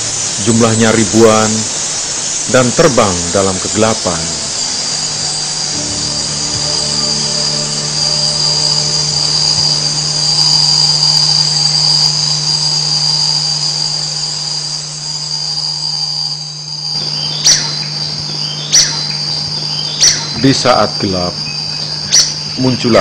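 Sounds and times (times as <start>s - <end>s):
high-pitched insect chirring: 0.0s - 23.0s
low steady hum: 0.0s - 23.0s
short sharp high call: 5.8s - 10.9s.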